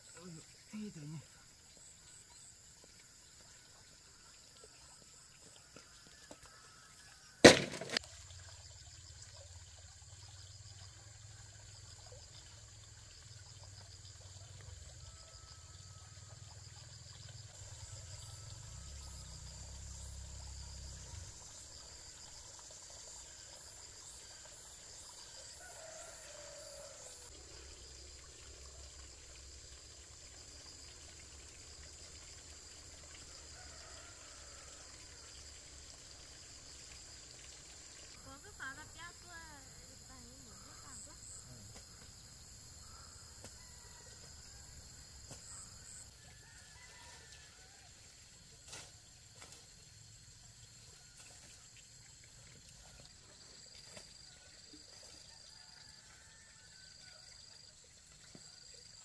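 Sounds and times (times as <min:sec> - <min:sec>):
insects chirring: 0:00.0 - 0:59.0
bamboo poles knocking: 0:07.4 - 0:08.0.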